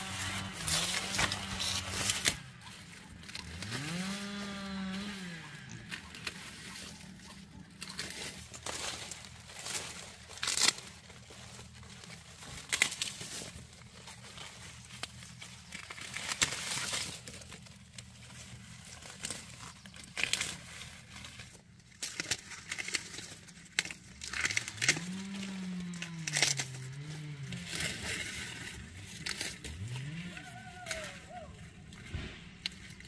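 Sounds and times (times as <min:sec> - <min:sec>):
cane snapping: 0:00.0 - 0:11.2, 0:12.2 - 0:13.6, 0:19.1 - 0:33.0
sugarcane rustling and crackling: 0:00.0 - 0:33.0.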